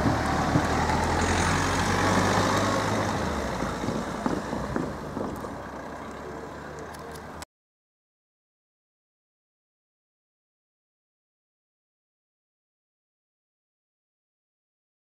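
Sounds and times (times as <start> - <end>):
diesel engine hum: 0.0 - 7.5.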